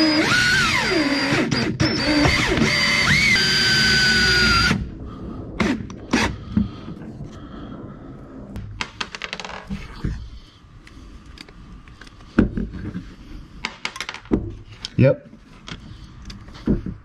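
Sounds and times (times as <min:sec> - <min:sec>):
power drill motor whining: 0:00.0 - 0:04.9.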